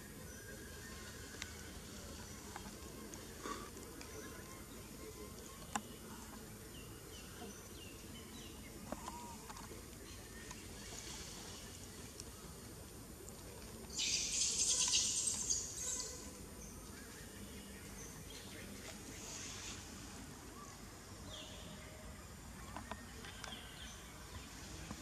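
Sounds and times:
high-pitched wildlife calls: 14.0s - 16.3s.

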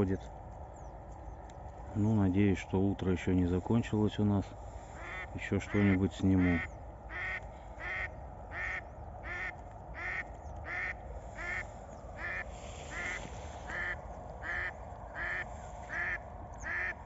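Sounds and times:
duck quacking: 5.0s - 17.0s.

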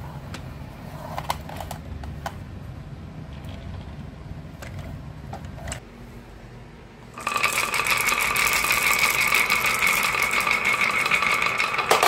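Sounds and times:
glass marbles clattering down wood: 7.2s - 12.0s.

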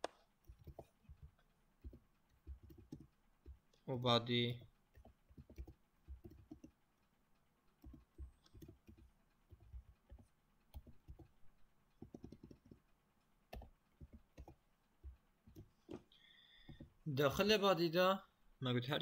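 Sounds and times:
computer keyboard typing: 0.4s - 3.6s, 4.4s - 6.8s, 7.8s - 11.4s, 12.0s - 12.9s, 13.5s - 15.7s.

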